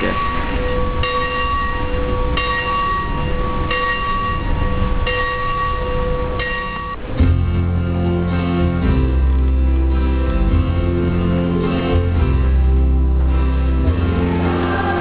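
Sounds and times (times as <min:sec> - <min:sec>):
church bell ringing: 0:00.0 - 0:15.0
guitar music: 0:07.0 - 0:15.0.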